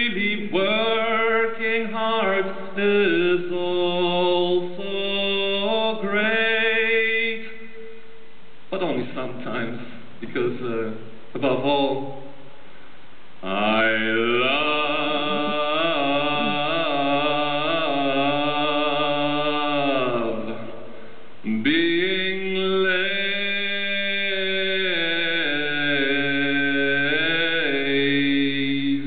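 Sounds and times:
voices chanting held chord: 13.4s - 29.0s.

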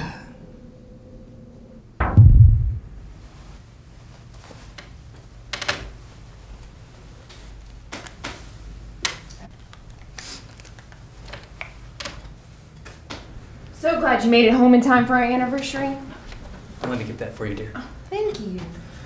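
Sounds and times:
low steady hum: 0.0s - 3.6s.

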